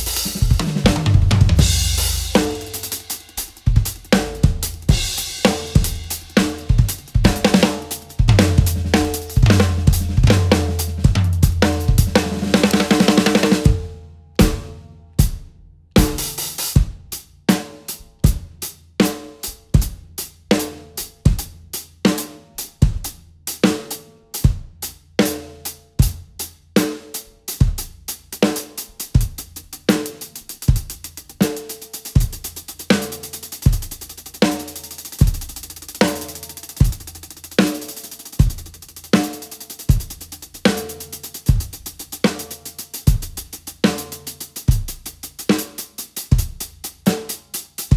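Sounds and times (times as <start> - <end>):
snare and tom strokes: 0.0 - 14.8, 28.2 - 47.9
drum fills: 0.0 - 24.6, 25.2 - 47.9.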